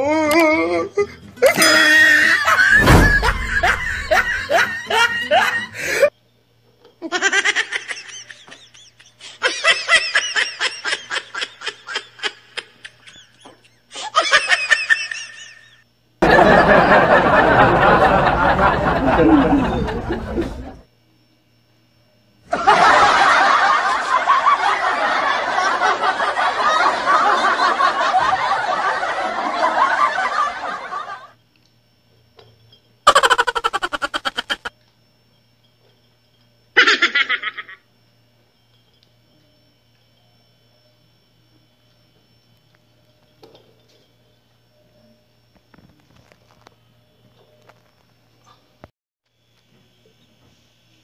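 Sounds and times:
person laughing: 0.0 - 6.1, 7.0 - 15.8, 16.4 - 20.8, 33.1 - 34.7, 36.8 - 37.8.

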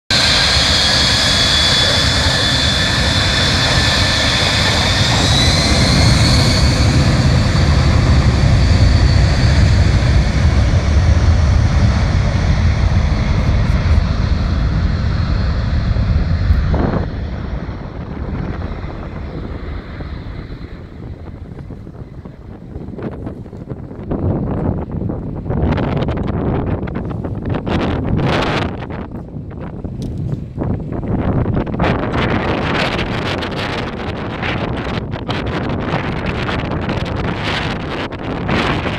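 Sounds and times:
jet engines whining and rumbling: 0.1 - 38.9.

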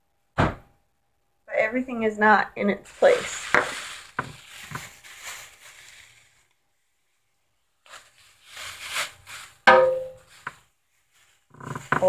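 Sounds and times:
kitchen items rustling and knocking: 2.9 - 6.0, 11.4 - 12.0.

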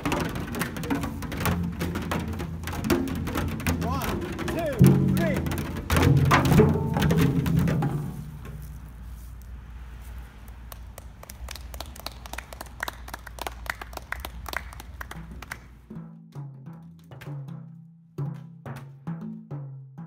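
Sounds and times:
group clapping: 0.0 - 5.9, 10.3 - 15.9
low pitched drum notes: 0.0 - 9.1.

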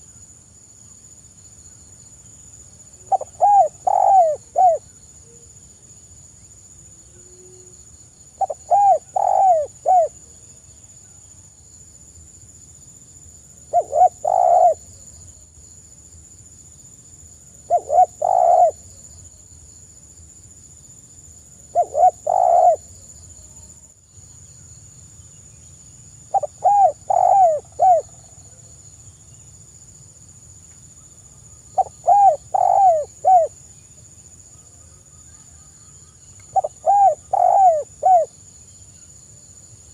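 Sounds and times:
dove cooing: 3.0 - 4.8, 8.4 - 10.2, 13.7 - 14.9, 17.7 - 18.8, 21.7 - 22.9, 26.3 - 28.2, 31.8 - 33.5, 36.5 - 38.3.

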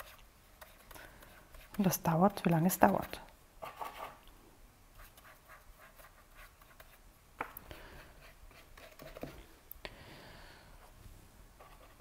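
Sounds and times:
paintbrush strokes on paper: 0.0 - 4.1.

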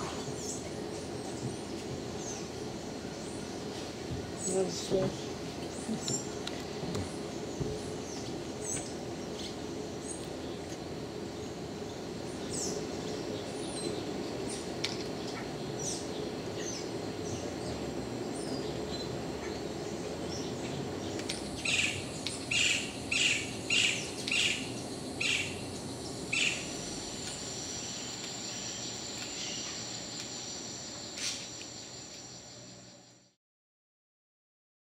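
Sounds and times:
insects humming: 0.0 - 33.4
high insect buzz: 21.4 - 33.4
high bird chirps: 21.6 - 29.8
bird calling loud notes: 21.6 - 29.9.

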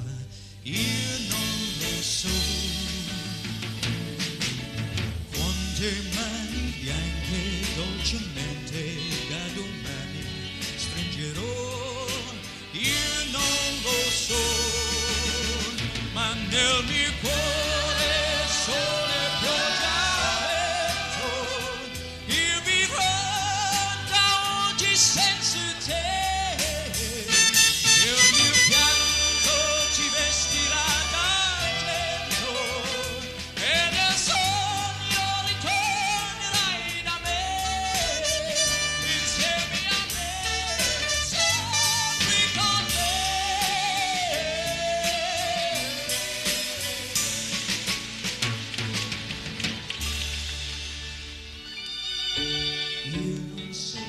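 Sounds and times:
man singing with vibrato: 0.0 - 3.6, 5.3 - 47.7, 52.8 - 54.0
singer breathing: 0.2 - 0.7
orchestra accompaniment: 13.2 - 35.4, 37.6 - 43.2, 47.0 - 53.7
backing choir: 16.3 - 33.4
orchestral accompaniment: 27.2 - 33.0, 50.0 - 53.7.

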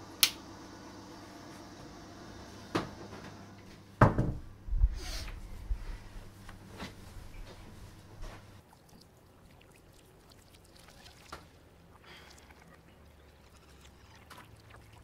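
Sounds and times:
door knock with ring-out: 4.0 - 4.4
door thud: 4.0 - 4.5
low rumble: 4.4 - 8.6.

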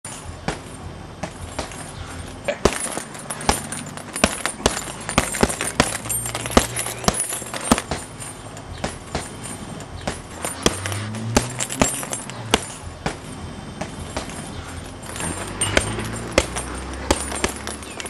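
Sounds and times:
chain jingling: 0.0 - 18.0
punches thudding on heavy bag: 0.1 - 18.0.

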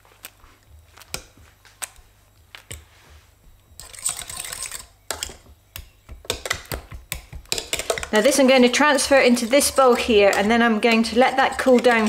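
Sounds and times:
metal masher tapping a pan: 6.1 - 12.0.

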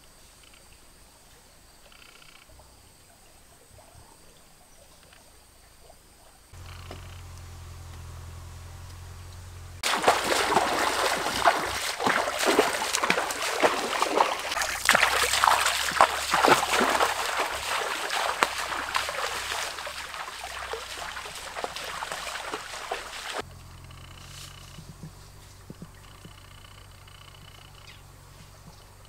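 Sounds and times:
water splashing from wading: 6.6 - 23.4.

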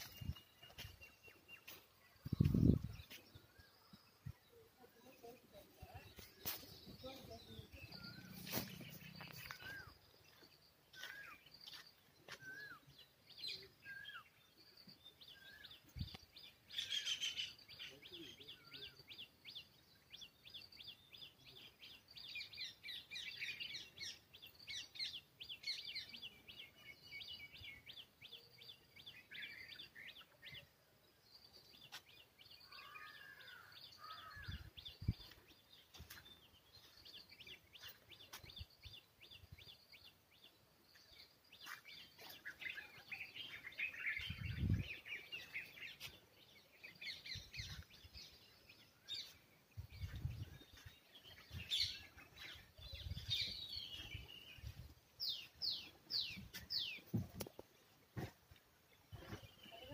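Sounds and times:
songbirds chirping: 0.0 - 59.9.

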